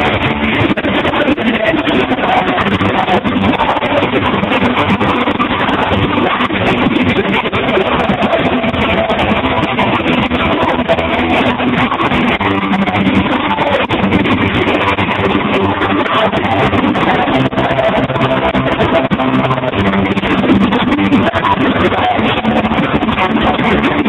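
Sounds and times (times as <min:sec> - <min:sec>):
guitar music: 0:00.0 - 0:24.0.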